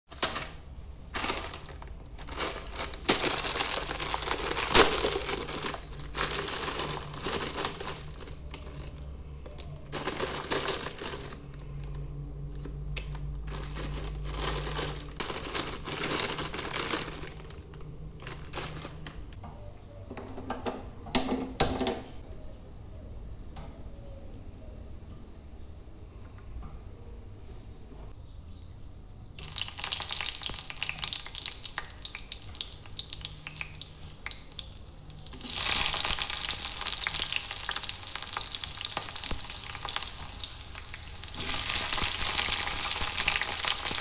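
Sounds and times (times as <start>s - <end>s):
plastic wrapper crinkling: 0.1s - 19.4s, 29.4s - 44.0s.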